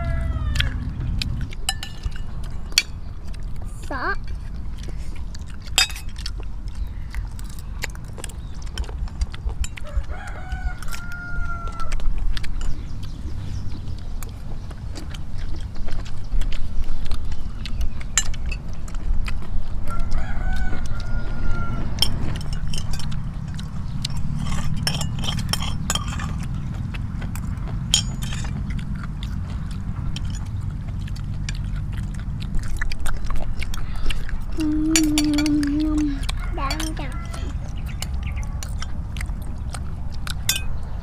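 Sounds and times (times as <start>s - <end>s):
rooster crowing: 0.0s - 0.9s, 9.8s - 12.0s, 19.8s - 22.1s, 36.1s - 38.6s
steady low rumble: 0.0s - 41.0s.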